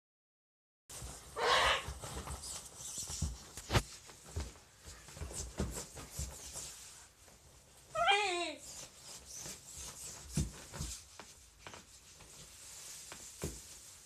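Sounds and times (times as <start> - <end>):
feet thumping on floor: 9.5 - 12.4, 13.1 - 13.9.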